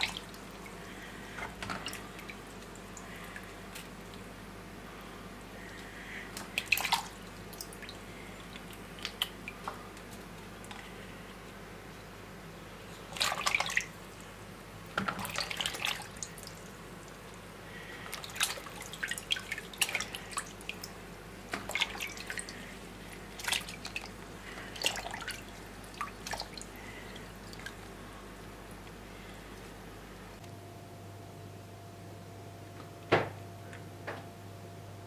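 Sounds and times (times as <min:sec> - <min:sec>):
water splashing in a plastic basin: 0:00.0 - 0:04.2, 0:06.3 - 0:10.8, 0:13.0 - 0:14.2, 0:14.9 - 0:17.2, 0:18.0 - 0:27.9.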